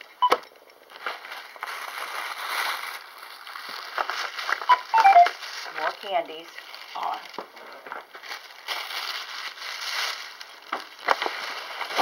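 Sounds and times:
paper bag and tissue rustling: 0:00.9 - 0:12.0.

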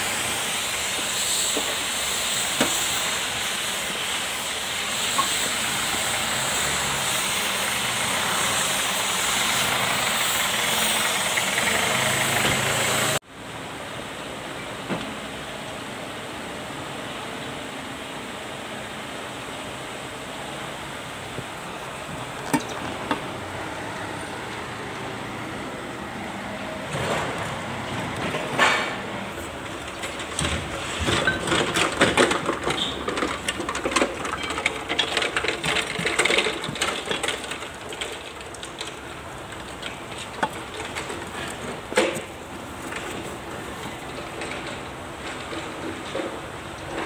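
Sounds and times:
workshop background noise: 0:00.0 - 0:47.0.

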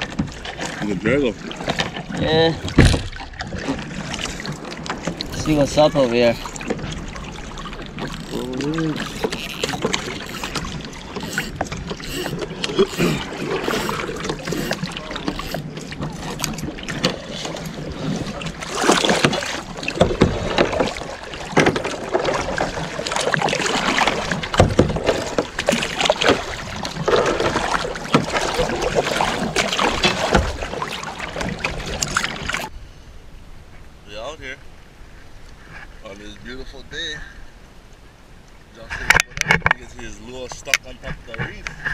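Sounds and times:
paddle splashing into water: 0:00.0 - 0:32.7
wash of moving water: 0:00.0 - 0:41.9.

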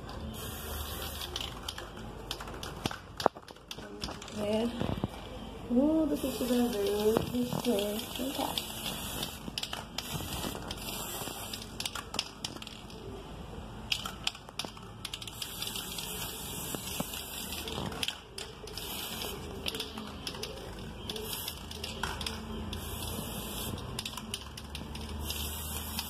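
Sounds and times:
aerosol spray can hissing: 0:00.4 - 0:01.7, 0:06.1 - 0:12.0, 0:15.2 - 0:18.1, 0:18.7 - 0:20.4, 0:21.1 - 0:24.2, 0:25.0 - 0:26.0.

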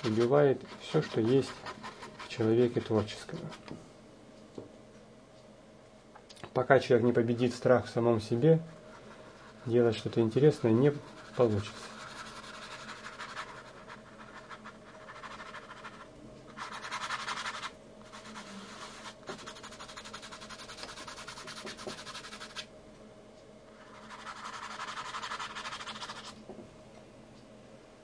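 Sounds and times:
paintbrush scrubbing canvas: 0:00.0 - 0:03.6, 0:08.8 - 0:22.7, 0:23.8 - 0:26.4.

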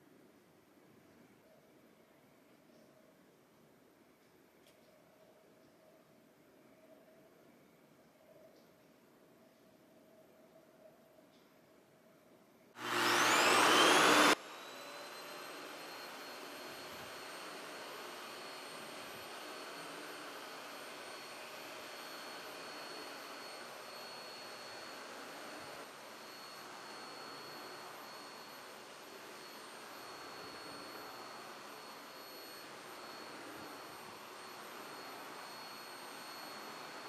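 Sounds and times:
vacuum cleaner motor whine: 0:12.8 - 0:37.0.

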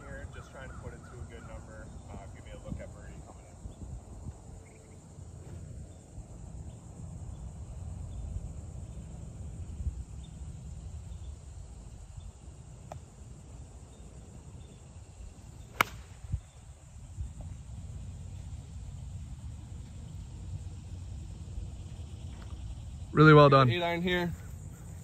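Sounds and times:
wind rumble on microphone: 0:00.0 - 0:12.8, 0:14.6 - 0:23.0
insects chirping: 0:00.0 - 0:25.0
golf club striking ball: 0:15.7 - 0:16.4.

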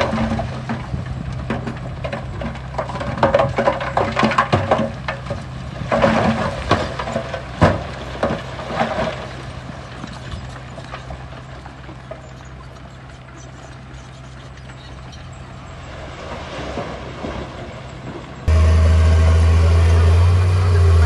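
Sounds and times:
diesel engine running: 0:18.4 - 0:21.0.

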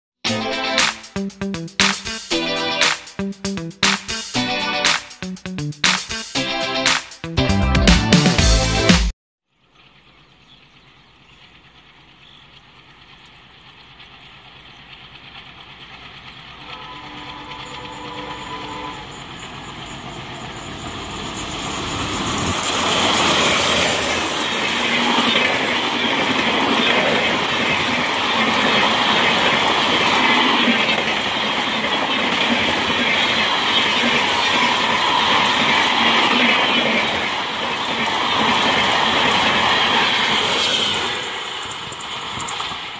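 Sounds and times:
diesel locomotive passing: 0:00.3 - 0:07.7, 0:09.7 - 0:42.9
train wheels clattering on rails: 0:09.8 - 0:42.9.

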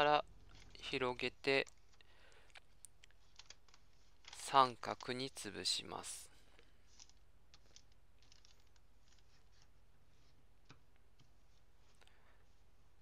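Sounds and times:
paper crinkling and rustling: 0:02.7 - 0:05.5, 0:06.8 - 0:10.4
sharp paper tick: 0:03.0 - 0:05.4.

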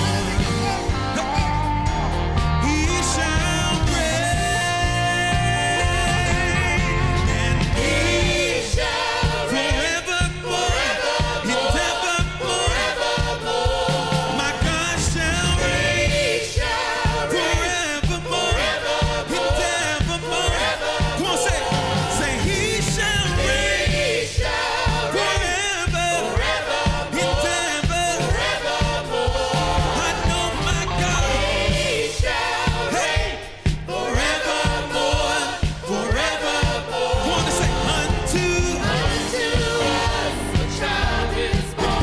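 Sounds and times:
band playing gospel song: 0:00.0 - 0:42.0
group singing: 0:00.0 - 0:42.0.

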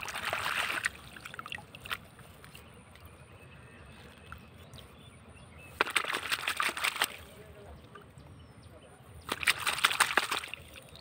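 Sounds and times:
muddy water splashing: 0:00.0 - 0:03.1, 0:05.7 - 0:08.1, 0:09.2 - 0:11.0
water trickling: 0:00.0 - 0:03.1.

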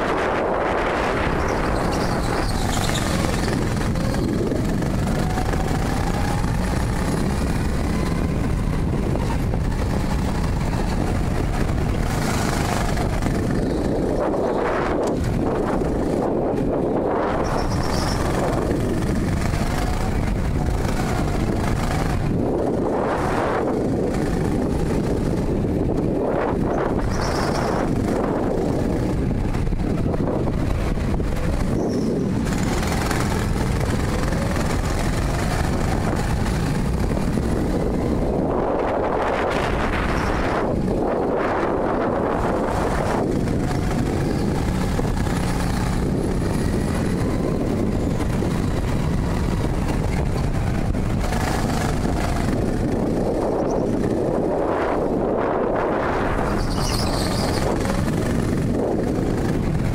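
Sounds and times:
go-kart motor: 0:00.0 - 0:59.9
rushing air: 0:00.0 - 0:59.9.

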